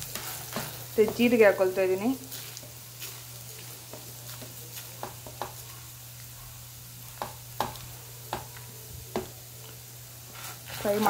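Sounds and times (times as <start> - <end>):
spatula scraping and tapping pan: 0.0 - 1.6, 2.2 - 5.7, 7.2 - 9.4, 10.3 - 11.0
faint frying sizzle: 0.0 - 11.0
spatula stirring spices in pan: 0.0 - 11.0.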